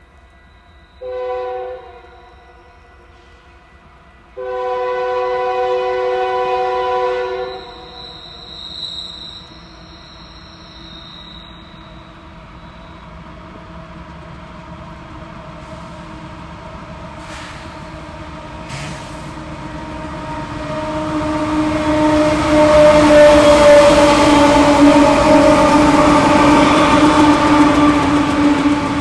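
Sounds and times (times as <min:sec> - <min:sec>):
diesel locomotive engine drone: 0:00.0 - 0:29.0
locomotive horn blast: 0:01.0 - 0:02.7, 0:04.4 - 0:08.0, 0:19.8 - 0:29.0.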